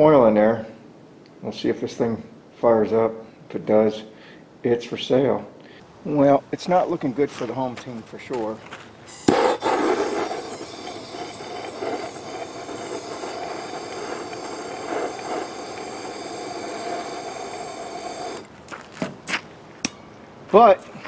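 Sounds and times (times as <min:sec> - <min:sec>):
gas torch flame hissing: 0:09.0 - 0:18.6.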